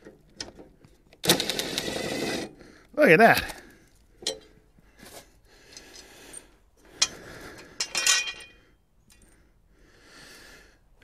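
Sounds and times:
metal blade clattering on concrete: 0:07.8 - 0:08.5.

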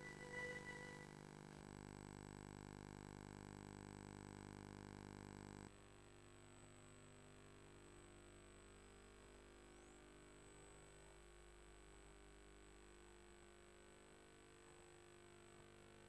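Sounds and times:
thin high whine: 0:00.0 - 0:01.5.

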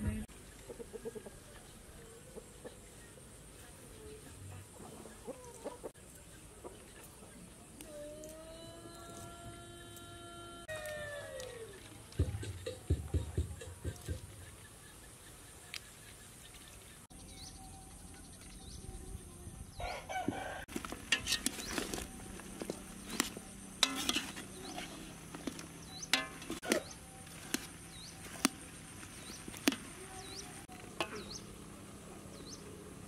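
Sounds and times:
small birds chirping: 0:11.5 - 0:20.0, 0:21.3 - 0:31.6, 0:32.2 - 0:32.8
rooster crowing: 0:19.8 - 0:20.7
metal ladle clinking on pot: 0:23.8 - 0:24.4, 0:26.1 - 0:26.8.

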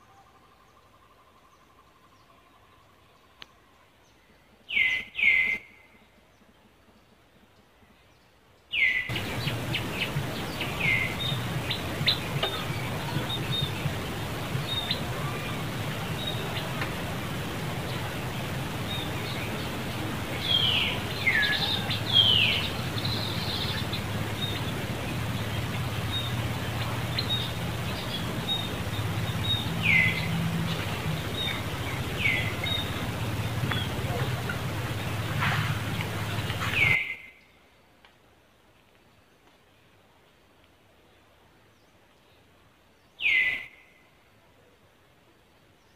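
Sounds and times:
steady low hum: 0:09.1 - 0:37.0.

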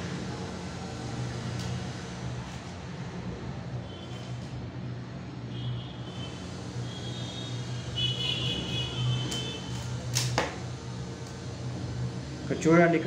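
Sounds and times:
wire stripper clicks: 0:09.3 - 0:10.6.

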